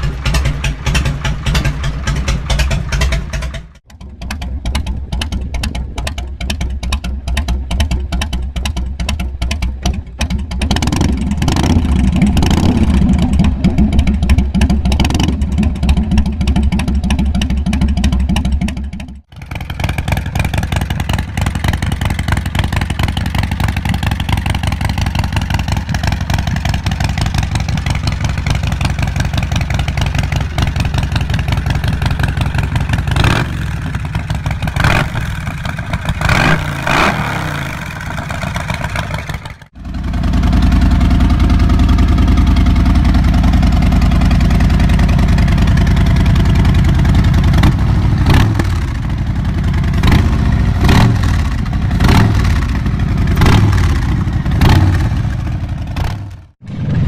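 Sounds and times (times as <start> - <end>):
motorcycle engine idling and revving: 0.0 - 57.0.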